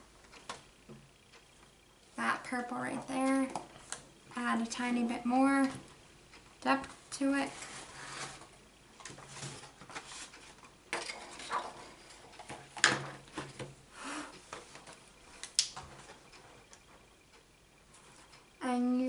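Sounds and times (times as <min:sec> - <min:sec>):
soft rustling: 0:06.9 - 0:10.7.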